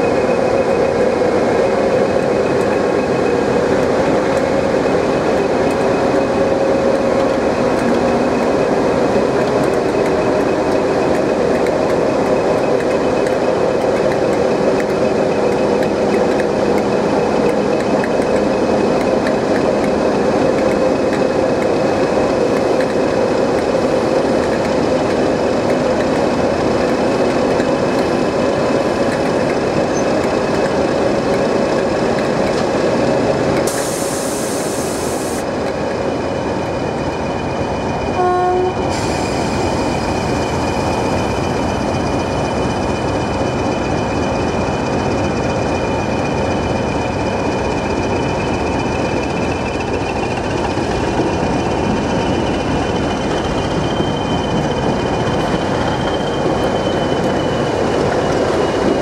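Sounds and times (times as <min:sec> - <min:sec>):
diesel locomotive engine idling: 0:00.0 - 0:59.0
locomotive horn toot: 0:38.2 - 0:38.8.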